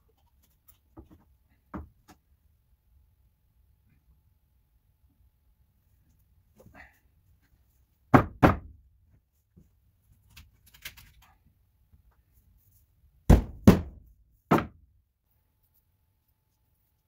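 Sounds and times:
knocks on wooden floor framing: 8.1 - 8.8, 13.3 - 14.8.

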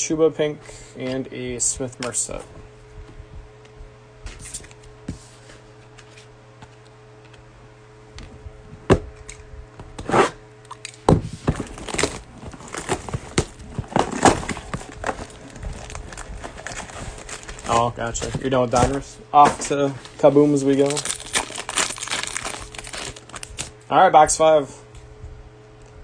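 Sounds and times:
steady low hum: 0.0 - 26.0
cardboard clicks and rustling: 11.4 - 23.7.

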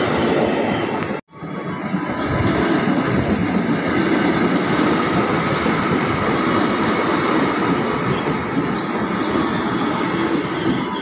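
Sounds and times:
electric train wheels on rails: 0.0 - 11.0.

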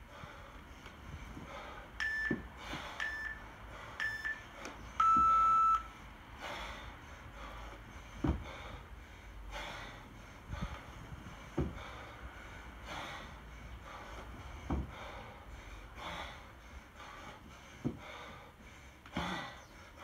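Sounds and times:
forceful breaths: 0.0 - 20.0
electronic timer beeping: 2.0 - 2.4, 3.0 - 3.4, 4.0 - 5.9
low thumps of kettlebell: 8.2 - 8.6, 11.5 - 11.9, 14.6 - 15.0.

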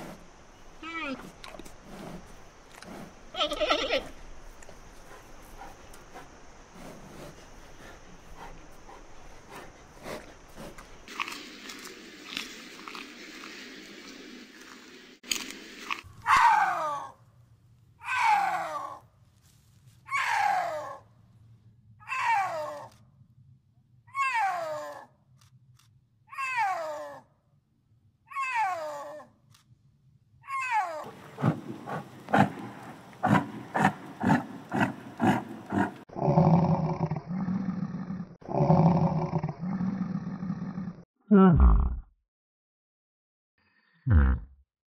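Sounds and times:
snow leopard yowling: 22.0 - 23.0.

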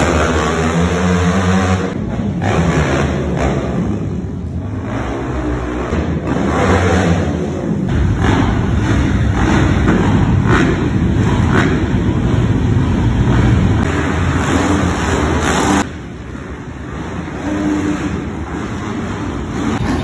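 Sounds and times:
dirt bike engines revving: 0.0 - 20.0.

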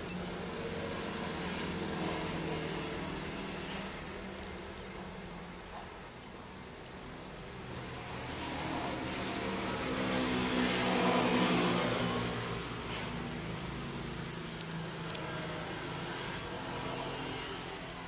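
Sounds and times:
sharp small metal clicks: 0.0 - 0.3, 3.9 - 5.4, 13.4 - 15.6.

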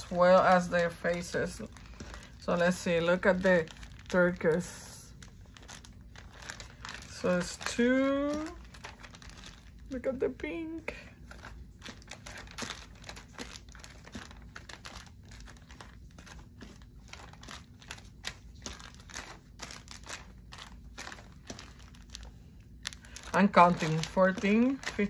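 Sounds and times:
packaging crinkling: 0.0 - 25.0.

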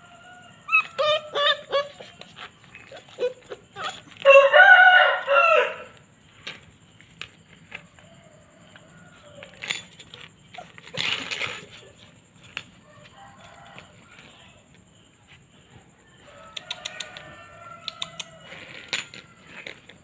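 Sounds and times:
rooster crowing: 0.0 - 2.5, 3.8 - 6.0, 7.8 - 9.6, 12.8 - 14.5, 16.0 - 19.9.

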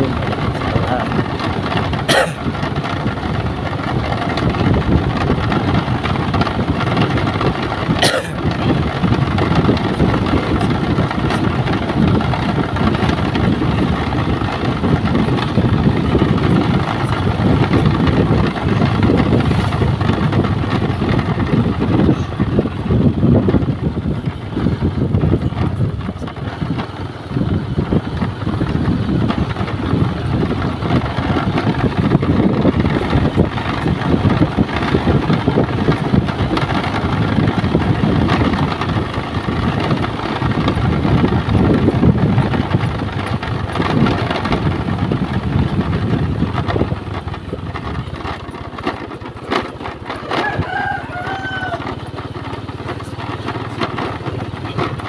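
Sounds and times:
vehicle engine rumble: 0.0 - 55.0
wind noise: 0.0 - 55.0
rooster crowing: 50.2 - 52.1.

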